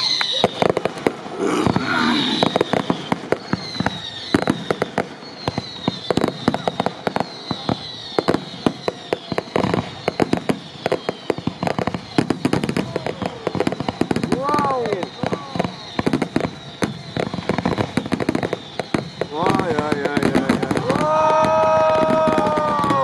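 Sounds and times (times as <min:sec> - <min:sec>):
high falling whistles: 0:00.0 - 0:00.6, 0:01.3 - 0:11.5
fireworks bangs and crackling: 0:00.0 - 0:23.0.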